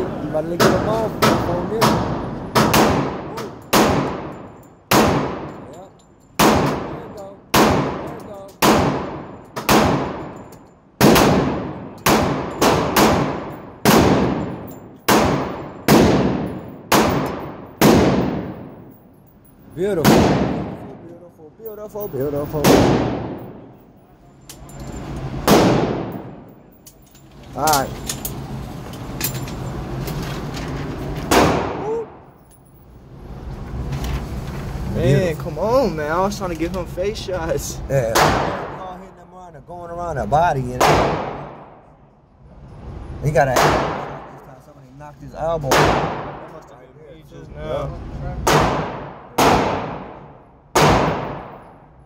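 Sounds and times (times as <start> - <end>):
loud gunshot: 0.6 - 4.3, 4.9 - 5.5, 6.4 - 6.9, 7.5 - 10.2, 11.0 - 18.5, 20.0 - 21.0, 22.6 - 23.6, 25.4 - 26.4, 31.3 - 32.2, 38.1 - 38.8, 40.8 - 41.8, 43.5 - 44.3, 45.7 - 46.5, 48.4 - 51.7
pistol shots echoing indoors: 0.6 - 5.6, 6.4 - 10.4, 11.0 - 18.7, 20.0 - 21.0, 22.6 - 23.8, 25.4 - 26.5, 40.8 - 41.9, 48.5 - 51.8.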